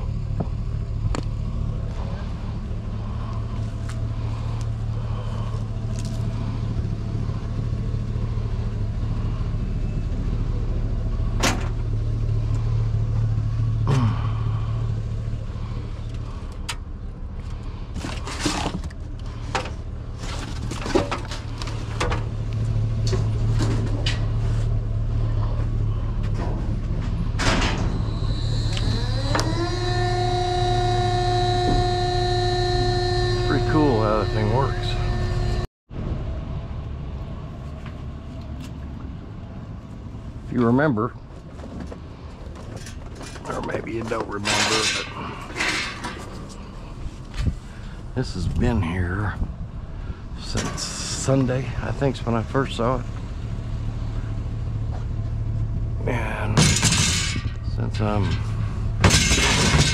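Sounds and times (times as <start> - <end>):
steady low hum: 0.0 - 59.9
motor whining: 28.0 - 35.7.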